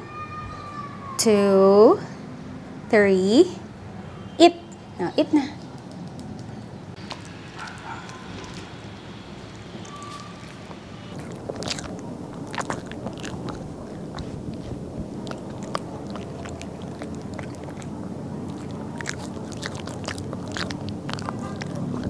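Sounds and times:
dog chewing crunchy treat: 5.8s - 8.8s, 9.5s - 22.0s.

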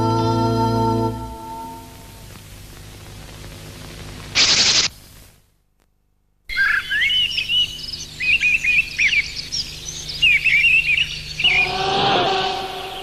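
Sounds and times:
birds chirping: 6.5s - 13.0s.

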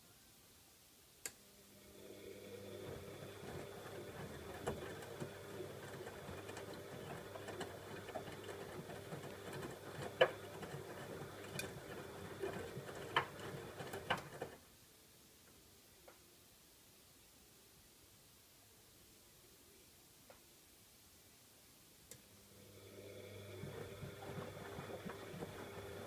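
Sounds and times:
washing machine motor humming: 1.6s - 14.6s, 22.5s - 26.0s.

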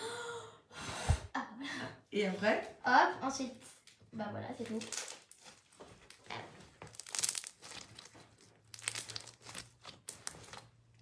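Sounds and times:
slime crackling and popping: 6.2s - 11.0s.

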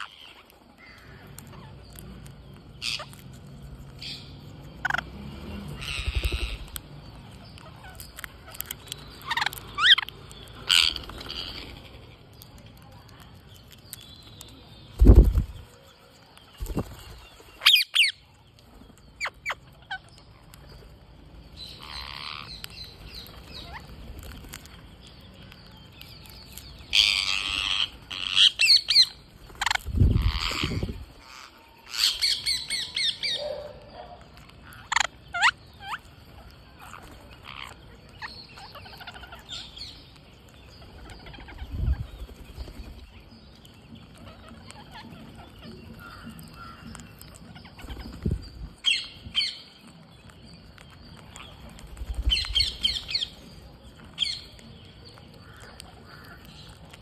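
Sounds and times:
parakeets squawking: 0.0s - 2.0s, 2.7s - 3.3s, 4.0s - 12.1s, 21.7s - 24.6s, 26.5s - 33.4s, 34.3s - 40.0s, 44.0s - 49.6s.

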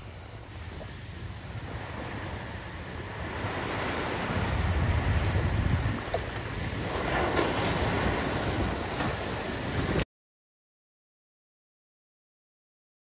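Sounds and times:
small waves breaking on beach: 0.0s - 10.0s.

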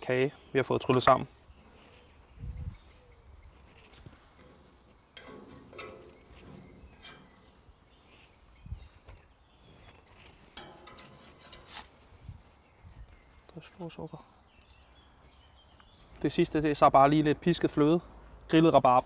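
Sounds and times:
faint outdoor background noise: 0.0s - 19.0s
soft clinks and knocks: 3.7s - 8.3s.

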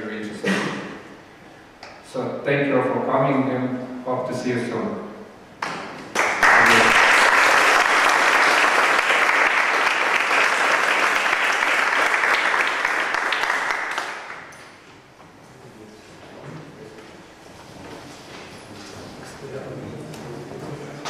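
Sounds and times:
audience applauding: 5.6s - 14.5s.

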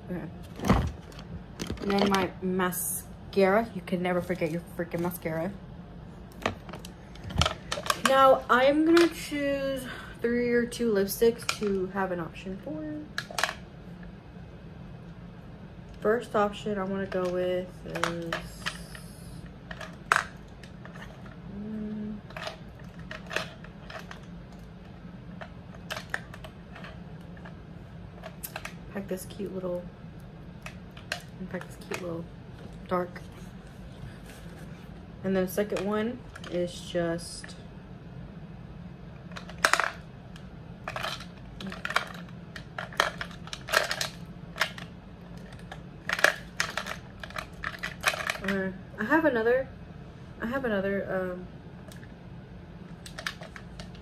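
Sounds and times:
makeup brushes clicking and rattling: 1.0s - 2.4s, 6.4s - 9.3s, 28.2s - 28.8s, 40.8s - 48.6s, 53.0s - 54.0s.

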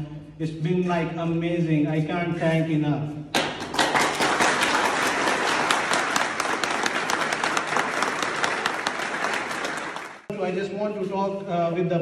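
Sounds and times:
crowd applauding: 3.4s - 10.3s.

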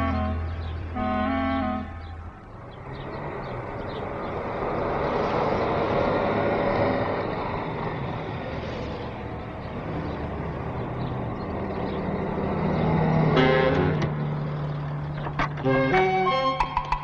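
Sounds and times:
car engines driving off: 0.0s - 17.0s.

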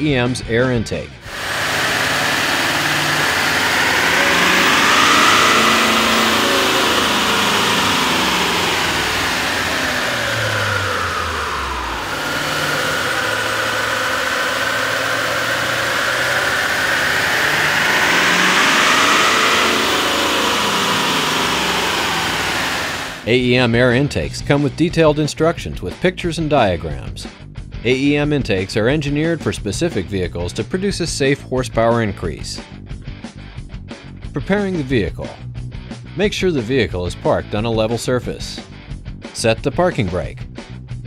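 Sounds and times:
diesel engine running under load: 1.3s - 23.3s
high whine: 1.3s - 23.6s.

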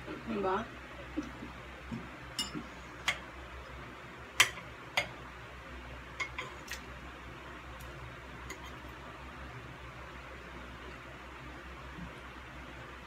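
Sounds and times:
metal forks clinking on dishes: 2.4s - 2.6s.

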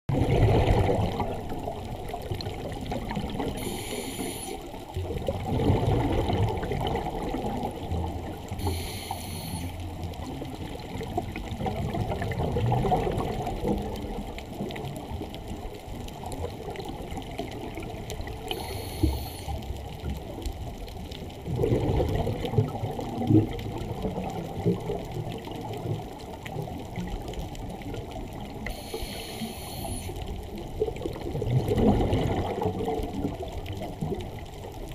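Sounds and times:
exhaled air bubbling: 0.1s - 34.9s
regulator inhalation hiss: 3.6s - 4.7s, 8.6s - 9.8s, 18.5s - 19.6s, 28.7s - 30.2s.

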